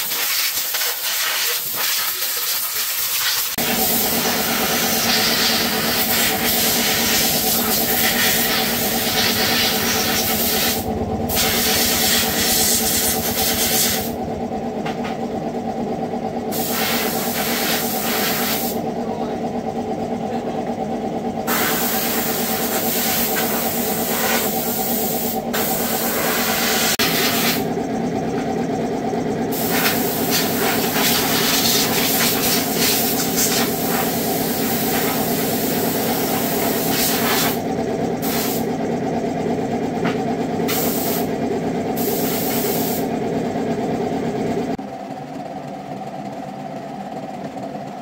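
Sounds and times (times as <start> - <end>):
hissing air blasts: 0.2 - 14.1
steady motor drone: 3.5 - 48.0.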